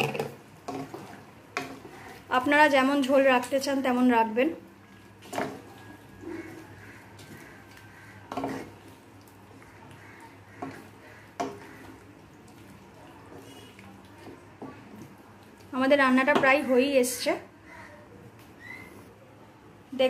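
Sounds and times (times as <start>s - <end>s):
spatula scraping a pan: 0.0s - 2.3s, 5.1s - 14.9s.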